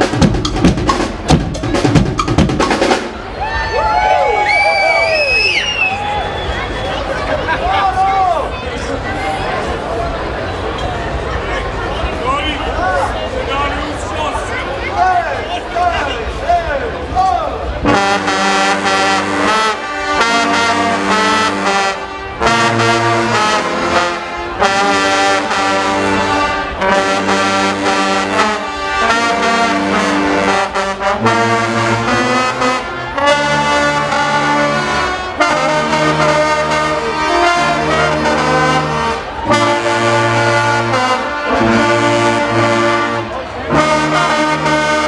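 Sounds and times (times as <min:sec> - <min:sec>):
drums and cymbals: 0:00.0 - 0:03.4
brass band playing loudly: 0:00.0 - 0:07.9, 0:17.6 - 0:45.0.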